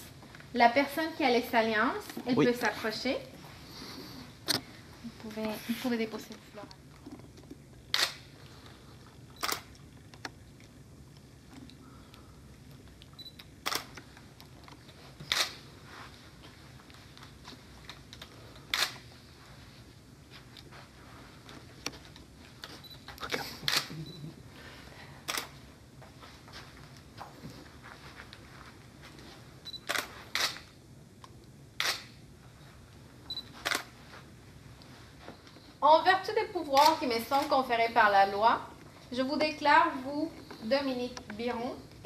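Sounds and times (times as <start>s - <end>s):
faint room hum: 0.0s - 42.0s
camera shutter clicks: 7.9s - 8.3s, 9.4s - 9.7s, 13.6s - 14.1s, 15.3s - 15.6s, 18.7s - 19.0s, 23.6s - 23.9s, 25.3s - 25.5s, 29.8s - 30.7s, 31.8s - 32.2s, 33.6s - 33.9s.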